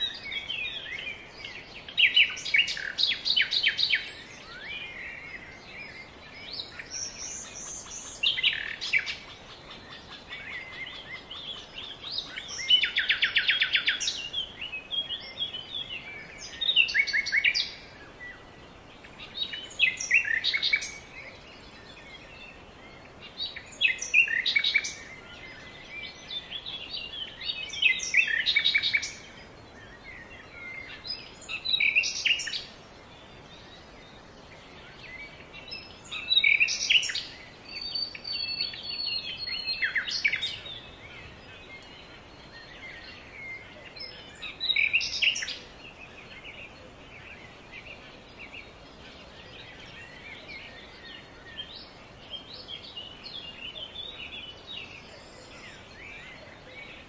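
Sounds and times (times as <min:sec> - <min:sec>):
faint steady hiss: 0:00.0 - 0:57.0
songbirds chirping and trilling: 0:00.0 - 0:57.0.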